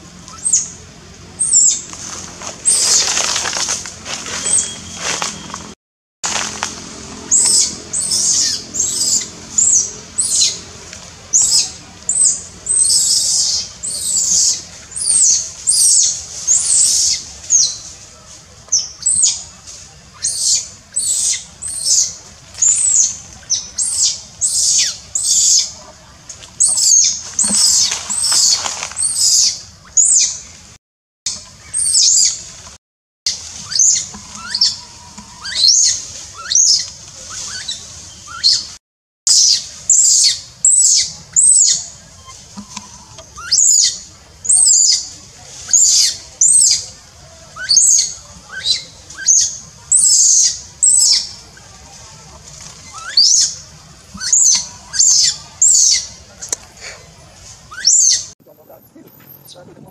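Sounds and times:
baby monkey screaming: 0:07.3 - 0:10.6, 0:11.3 - 0:17.8, 0:20.1 - 0:25.7, 0:26.6 - 0:30.4, 0:31.6 - 0:32.4, 0:33.6 - 0:38.7, 0:39.3 - 0:45.1, 0:45.7 - 0:46.8, 0:47.6 - 0:51.4, 0:52.8 - 0:53.6, 0:54.2 - 0:56.2, 0:57.7 - 0:58.3.

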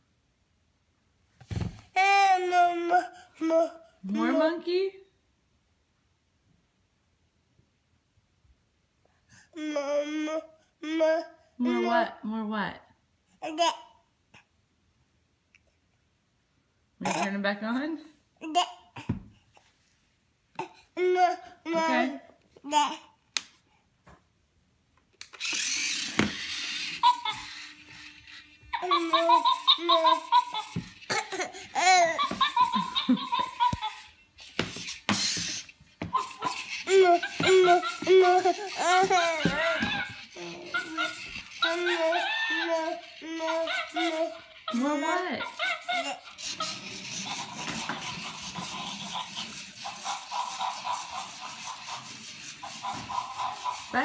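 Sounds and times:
toy motors and gears whirring: 0:01.9 - 0:04.5, 0:25.2 - 0:54.0
toddler laughing and squealing: 0:25.5 - 0:54.0.

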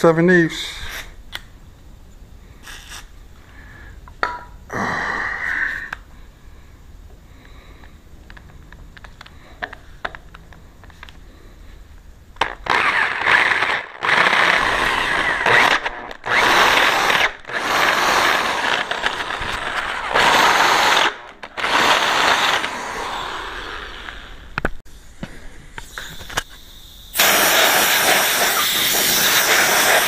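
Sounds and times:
loud steady hiss: 0:09.3 - 0:30.0
electric drill cutting into metal: 0:12.4 - 0:24.4, 0:26.2 - 0:30.0.

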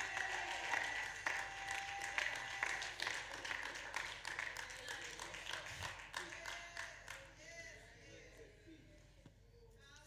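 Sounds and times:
congregation clapping: 0:00.0 - 0:07.6.

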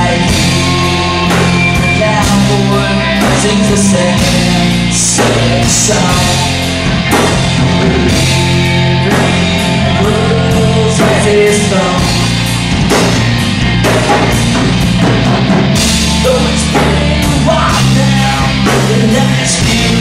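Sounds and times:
person singing: 0:00.0 - 0:06.7, 0:07.8 - 0:12.4, 0:16.0 - 0:20.0
bass line: 0:00.0 - 0:20.0
drum kit hits: 0:00.0 - 0:20.0.

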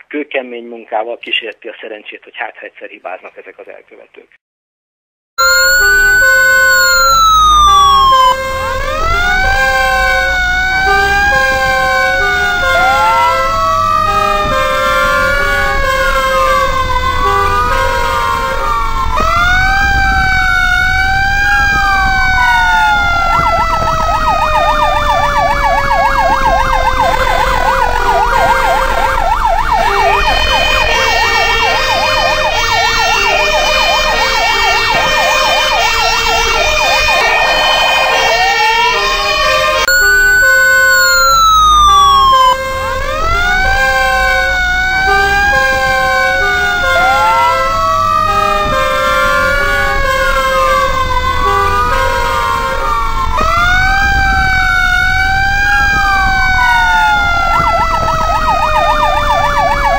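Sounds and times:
stepped switching siren tone: 0:05.4 - 0:14.8, 0:19.0 - 0:39.0, 0:39.8 - 0:42.6
fast siren yelp: 0:05.4 - 0:59.9
sirens wailing: 0:05.4 - 0:59.9.

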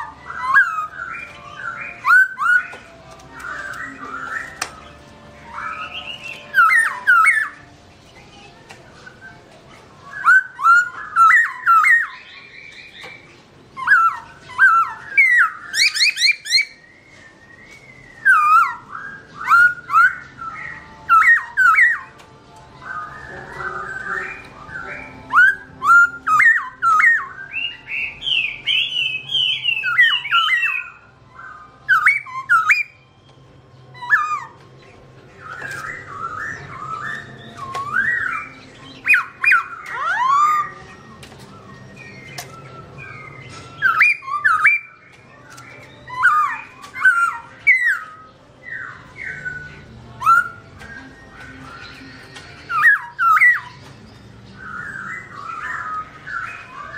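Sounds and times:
bird singing whistled phrases: 0:00.0 - 0:07.6, 0:10.0 - 0:22.2, 0:22.8 - 0:33.1, 0:33.7 - 0:34.6, 0:35.3 - 0:56.9.

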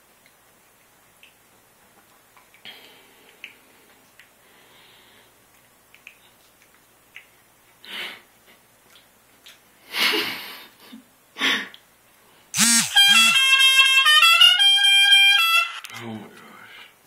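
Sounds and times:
held steady-pitched notes: 0:12.6 - 0:15.9.

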